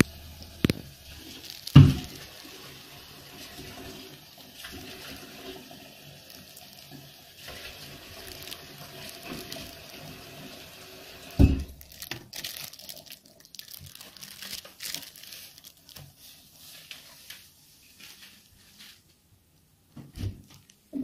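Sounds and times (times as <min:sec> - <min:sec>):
plastic bag crinkling: 0:00.0 - 0:02.8, 0:04.6 - 0:10.4, 0:11.4 - 0:19.0.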